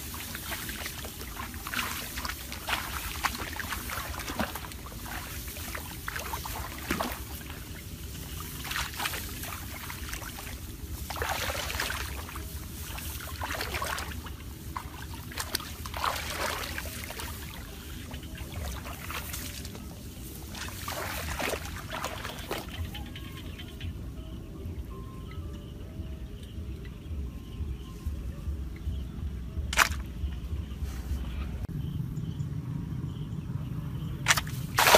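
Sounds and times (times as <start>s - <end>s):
water splashing and sloshing: 0.0s - 24.2s, 28.8s - 31.7s, 34.2s - 34.9s
steady low rumble: 0.0s - 34.9s.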